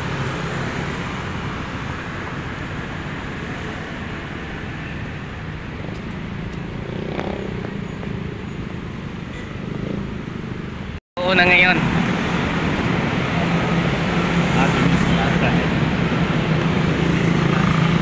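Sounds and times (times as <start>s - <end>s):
cars passing: 0.0s - 18.0s
motor scooters passing: 6.2s - 10.7s, 12.2s - 18.0s.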